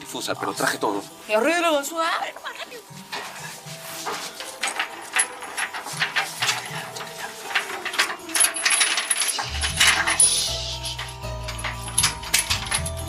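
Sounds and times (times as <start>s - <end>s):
low background music: 0.0s - 13.0s
chain and padlock rattling: 4.0s - 13.0s.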